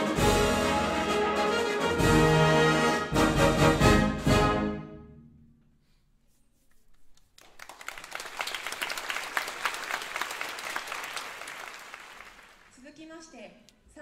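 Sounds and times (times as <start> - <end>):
audience applause: 7.4 - 12.7.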